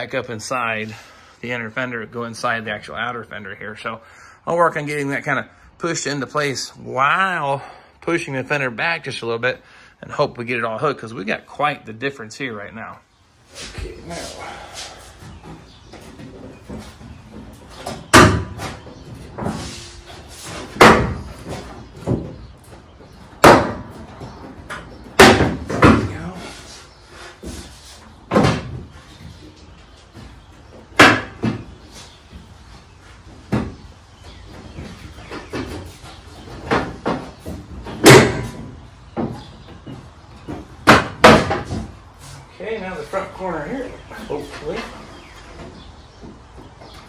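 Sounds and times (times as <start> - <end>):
hollow metal knocks and bangs: 16.0 - 19.7, 20.6 - 26.3, 30.9 - 31.7, 34.7 - 42.0
sheet metal thumps: 20.6 - 22.4, 36.6 - 42.0.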